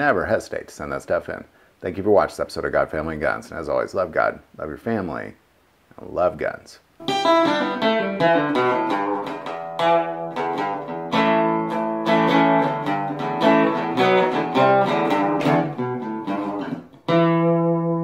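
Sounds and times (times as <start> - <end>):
acoustic guitar music: 7.0 - 18.0.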